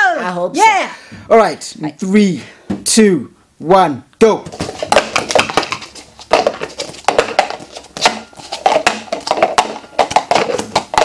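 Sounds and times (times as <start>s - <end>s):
plastic cups clattering on table: 4.5s - 11.0s.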